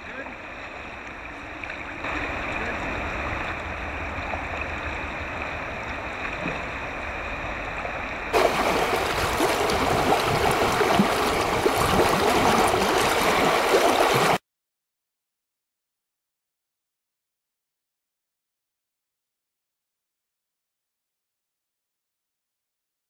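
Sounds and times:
water splashing and gurgling: 0.0 - 14.4
river water rushing over rocks: 1.6 - 14.4.

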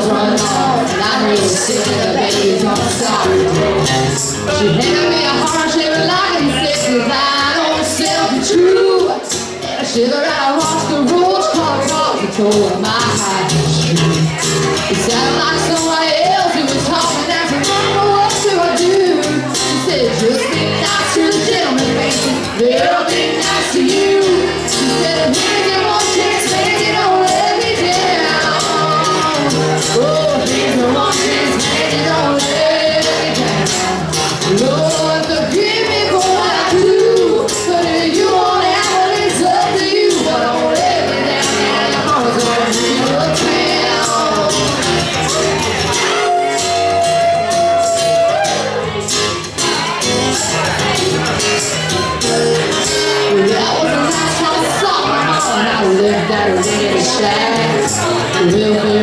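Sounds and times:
woman singing: 0.0 - 3.9, 4.6 - 45.0, 52.9 - 59.0
acoustic guitar strummed: 0.0 - 59.0
tambourine shaking: 0.3 - 4.8.

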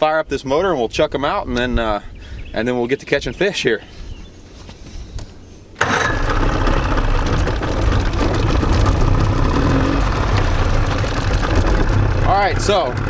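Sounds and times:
outboard motor idling: 5.8 - 13.0.

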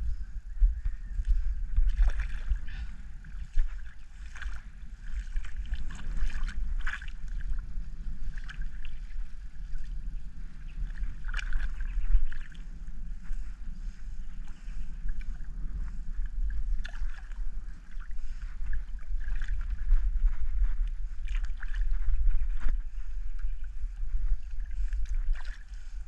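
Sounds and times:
wind rumbling on microphone: 0.0 - 26.0
water splashing against rocks: 10.8 - 12.6.

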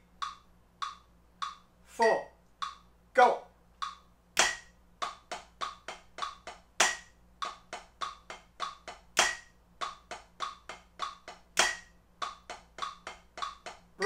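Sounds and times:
drumsticks on practice pad: 0.0 - 1.8, 2.5 - 3.0, 3.8 - 14.0.

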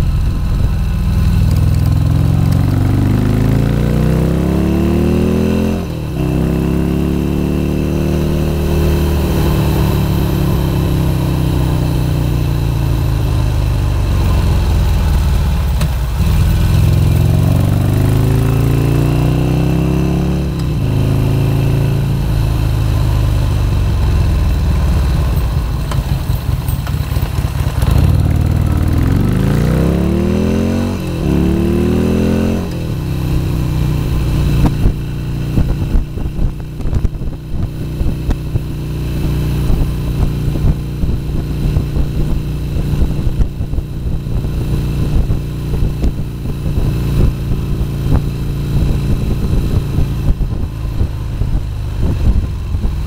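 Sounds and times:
motorcycle engine revving: 0.0 - 53.0
wind buffeting microphone: 34.4 - 38.7, 39.6 - 53.0.

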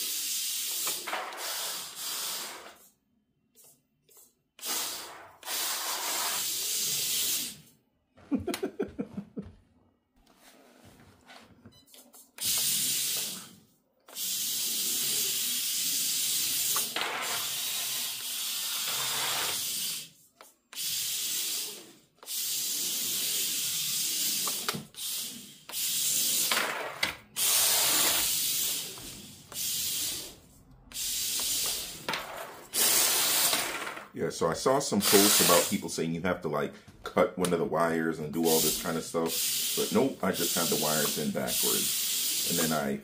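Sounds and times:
toy car electric motor whirring: 0.0 - 2.9, 4.2 - 7.7, 12.2 - 34.1, 35.1 - 35.8, 38.4 - 42.8.

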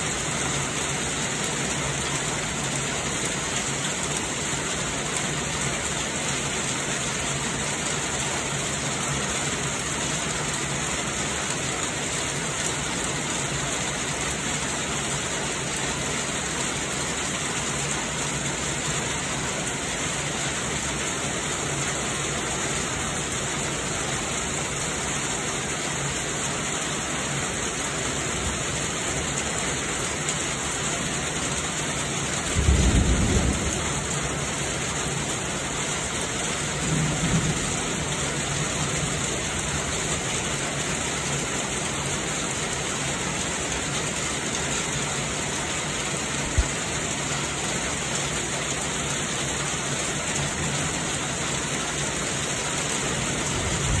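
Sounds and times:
heavy rain falling: 0.0 - 54.0
low rumble of thunder: 32.5 - 34.7, 36.7 - 38.4, 53.5 - 54.0.

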